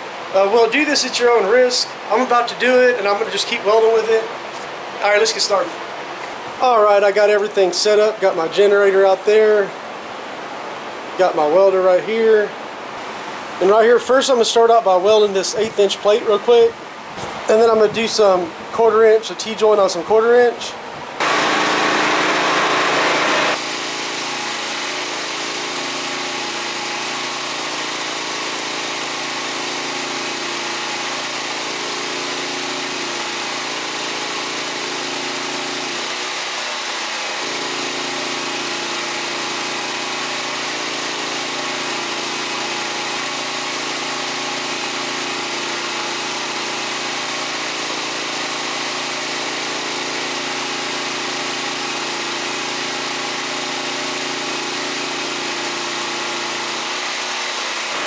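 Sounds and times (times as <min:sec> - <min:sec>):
generator hum: 0:00.0 - 0:58.0
welding arc hissing: 0:21.2 - 0:58.0.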